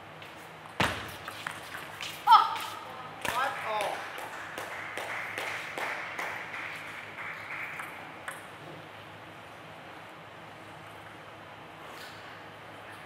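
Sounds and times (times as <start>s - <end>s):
hush of a large hall: 0.0s - 13.0s
table tennis ball bouncing: 7.6s - 8.6s.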